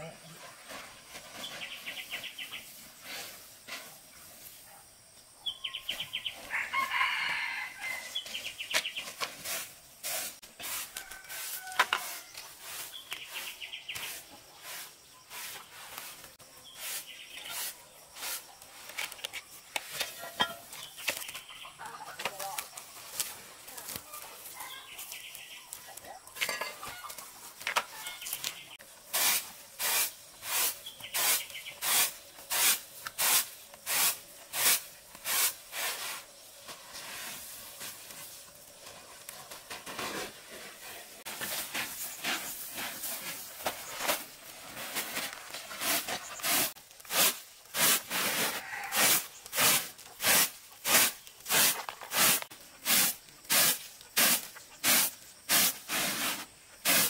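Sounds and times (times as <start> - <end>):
steady hiss: 28.3 - 57.0.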